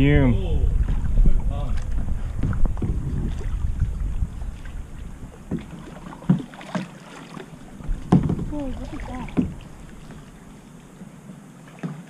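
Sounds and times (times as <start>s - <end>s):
low microphone rumble: 0.0s - 6.4s, 7.6s - 10.7s
paddles stroking through water: 0.0s - 12.0s
short splashes: 1.7s - 11.0s.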